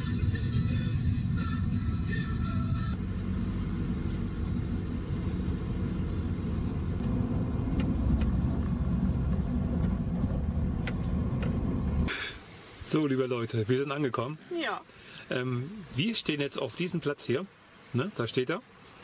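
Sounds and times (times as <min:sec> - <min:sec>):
van engine and road rumble: 0:00.0 - 0:12.8.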